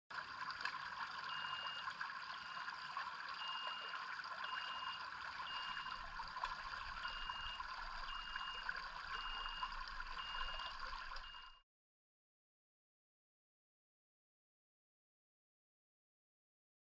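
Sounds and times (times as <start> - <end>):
stream running over stones: 0.1 - 11.6
high warning beep: 1.3 - 2.7, 3.4 - 6.0, 7.0 - 11.6.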